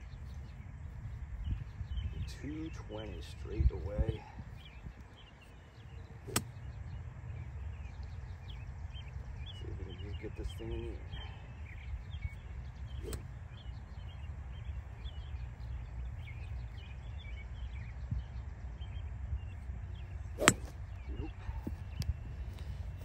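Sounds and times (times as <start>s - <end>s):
birds chirping: 0.0s - 23.0s
wind rumble on microphone: 0.0s - 23.0s
golf club striking ball: 6.3s - 6.5s, 13.0s - 13.2s, 20.4s - 20.8s.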